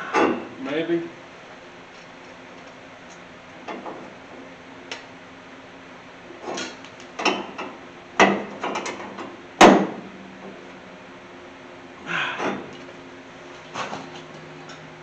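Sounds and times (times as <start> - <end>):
hard clicks and clunks: 6.4 - 10.0.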